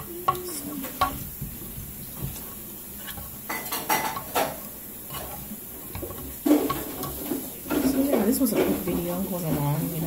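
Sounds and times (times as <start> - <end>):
dishes and utensils clattering: 3.0 - 10.0.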